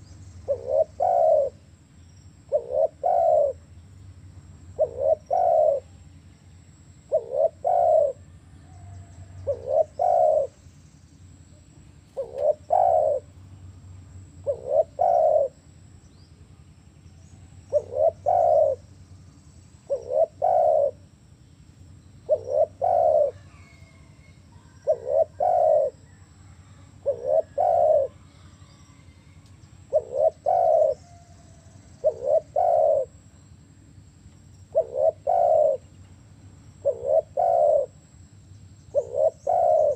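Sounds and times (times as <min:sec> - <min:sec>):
dove cooing: 0:00.0 - 0:01.7, 0:02.4 - 0:03.7, 0:04.7 - 0:06.0, 0:07.1 - 0:10.6, 0:12.1 - 0:13.3, 0:14.4 - 0:15.6, 0:17.5 - 0:18.9, 0:19.8 - 0:21.1, 0:22.2 - 0:33.3, 0:34.7 - 0:36.0, 0:36.8 - 0:38.0, 0:38.9 - 0:39.9.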